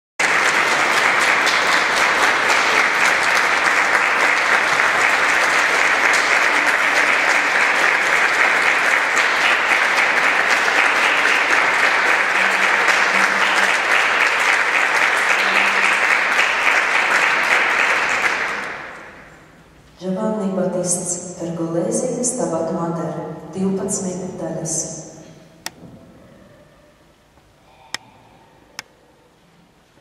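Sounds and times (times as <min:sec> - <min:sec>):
audience applauding: 0:00.2 - 0:19.4.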